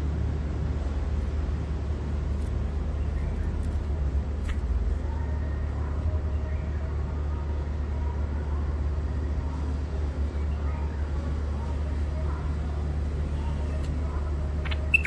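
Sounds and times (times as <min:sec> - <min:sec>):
steady low rumble: 0:00.0 - 0:15.0
caged bird chirping: 0:02.7 - 0:06.9, 0:13.2 - 0:15.0.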